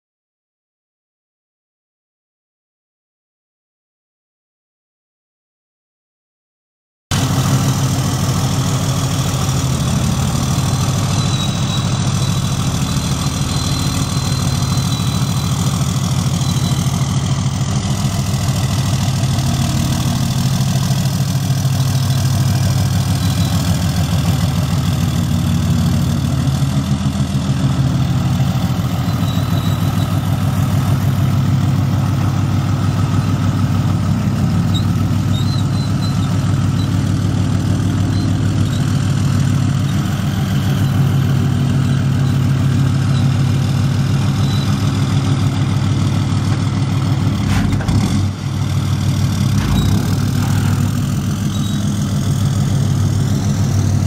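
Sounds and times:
diesel truck engine idling: 7.1s - 54.0s.

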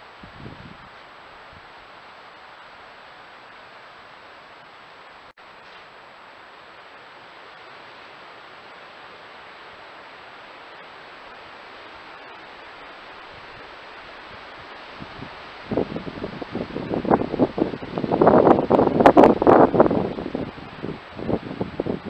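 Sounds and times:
microphone hiss: 0.0s - 22.0s
wind buffeting microphone: 0.1s - 1.7s, 13.2s - 22.0s.

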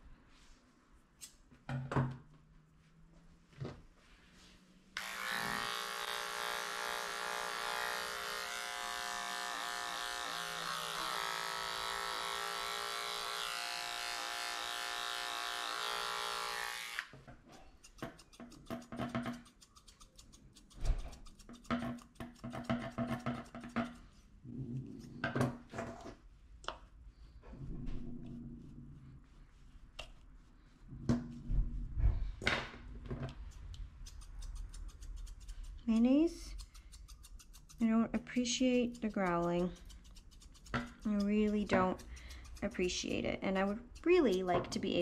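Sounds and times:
pet hair clipper running: 5.0s - 17.1s.

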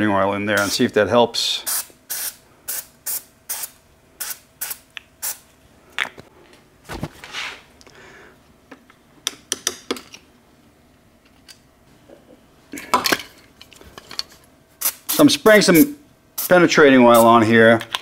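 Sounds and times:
aerosol spray bursts: 1.7s - 5.4s.

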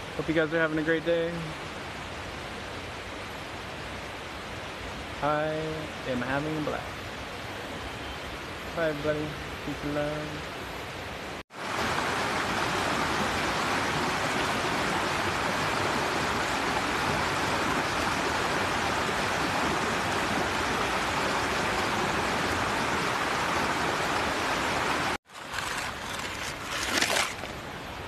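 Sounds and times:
river rushing over rocks: 11.5s - 26.0s.

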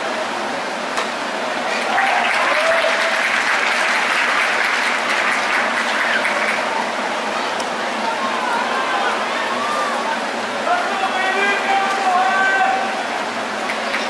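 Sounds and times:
crowd cheering and applauding: 1.6s - 14.0s
individual shouts: 8.0s - 13.0s.

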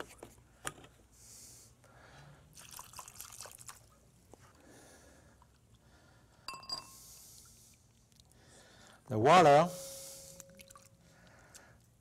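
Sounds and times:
water trickling into a glass bowl: 2.6s - 3.9s, 10.3s - 11.0s.

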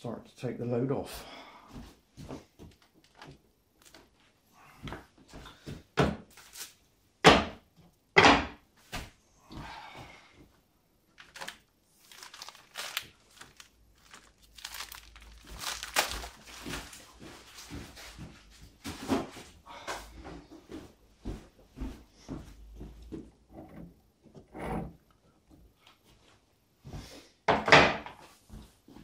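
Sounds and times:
bags knocking and thudding: 11.2s - 18.2s.

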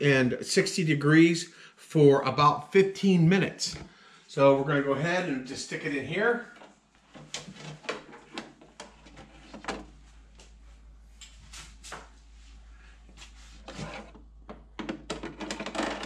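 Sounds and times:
faint low hum: 0.0s - 16.0s
wire racks clicking and rattling: 13.8s - 16.0s.

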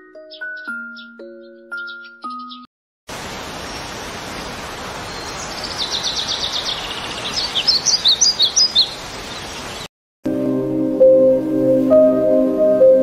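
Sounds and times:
bird trill: 0.2s - 2.7s, 5.0s - 9.8s
songbird singing: 0.2s - 9.9s
sharp bird chirps: 0.3s - 2.7s, 3.6s - 9.9s
water rushing over rocks: 3.1s - 6.4s.

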